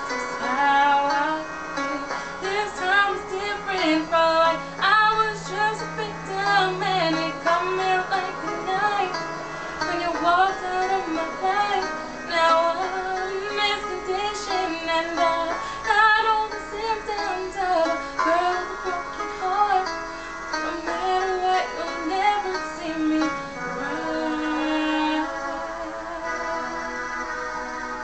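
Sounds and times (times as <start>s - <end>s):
woman singing slow melody: 0.0s - 27.0s
instrumental backing music: 0.0s - 28.0s.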